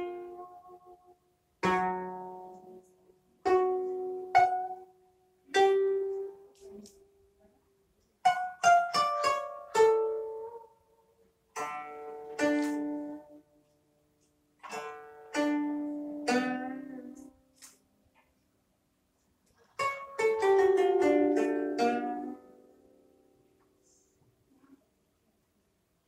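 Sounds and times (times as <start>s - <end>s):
koto plucked: 0.0s - 7.5s, 8.2s - 10.9s, 11.5s - 17.8s, 19.6s - 24.8s.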